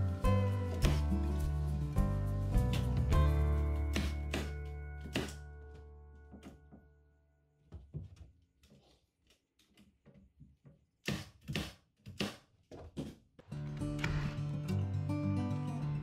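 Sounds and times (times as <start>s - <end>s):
music: 0.0s - 7.0s, 13.5s - 16.0s.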